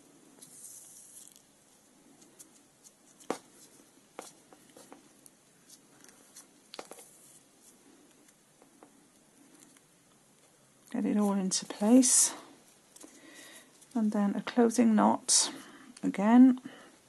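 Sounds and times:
needle and thread through ribbon: 0:00.4 - 0:08.4.

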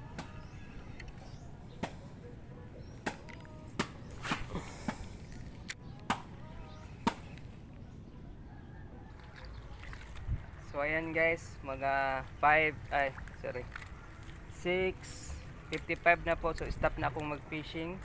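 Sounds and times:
sharp knocks and slaps: 0:03.0 - 0:05.0, 0:07.0 - 0:07.3
low rumble of water and wind: 0:05.1 - 0:18.0.

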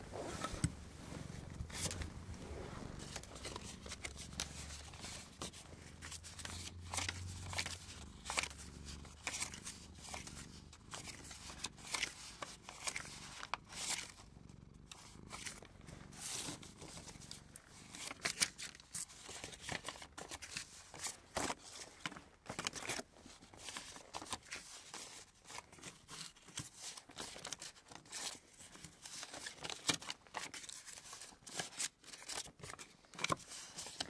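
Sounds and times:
paper cards rustling: 0:00.4 - 0:14.0.

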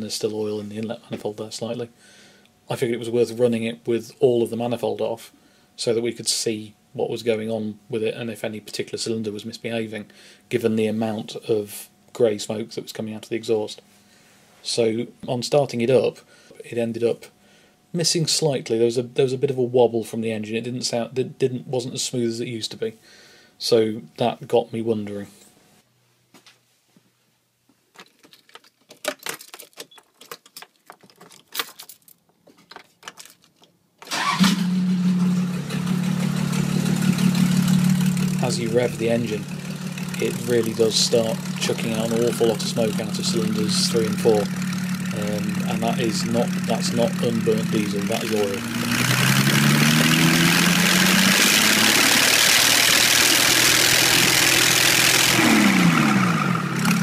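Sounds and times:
ignition keys handled: 0:28.0 - 0:33.8
diesel engine idling: 0:34.8 - 0:57.0.

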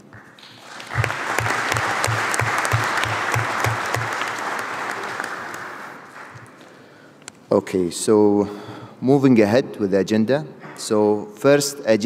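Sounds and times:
close hand claps thudding: 0:00.0 - 0:05.2
audience applause: 0:00.1 - 0:06.7.

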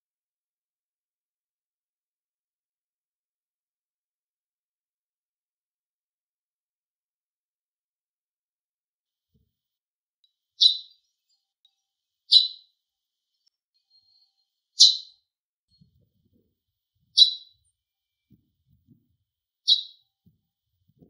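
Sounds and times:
sparrow chirping: 0:10.2 - 0:20.3.

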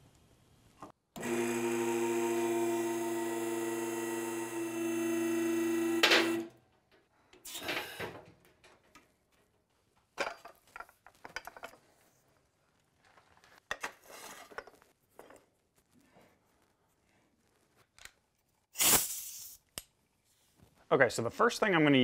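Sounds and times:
hydraulic pump motor humming: 0:01.2 - 0:06.5
pump motor clunk: 0:03.6 - 0:06.5.

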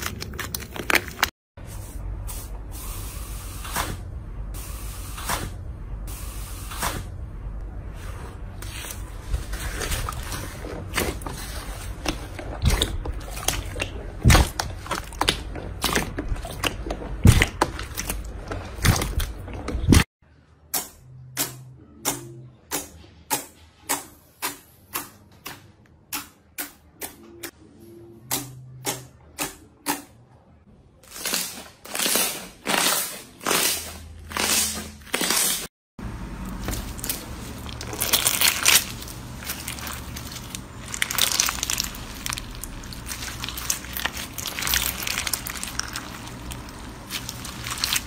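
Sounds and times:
slime crackling and popping: 0:36.8 - 0:48.0.

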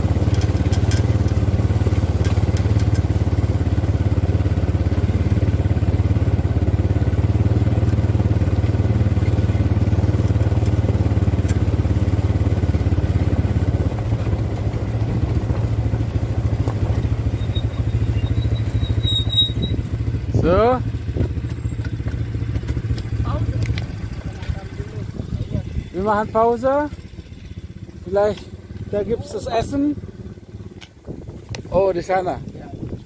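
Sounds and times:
quad bike engines droning: 0:00.0 - 0:33.0.

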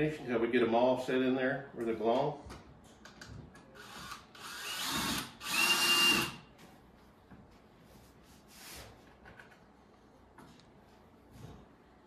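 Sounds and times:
cordless drill driving screws: 0:03.8 - 0:06.4.

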